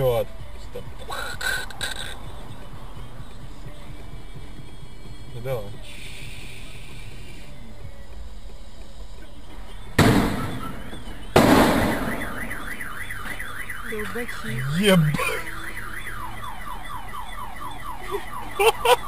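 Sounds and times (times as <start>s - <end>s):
car alarm: 9.8s - 19.0s
loud bangs: 10.0s - 12.7s.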